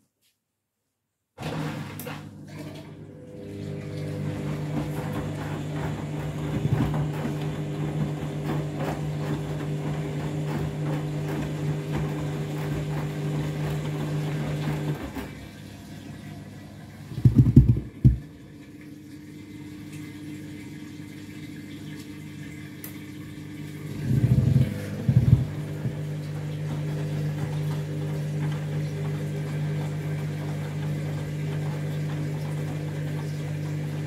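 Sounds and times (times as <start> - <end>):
washing machine motor humming: 1.4 - 34.0
water splashing in drum: 17.0 - 34.0.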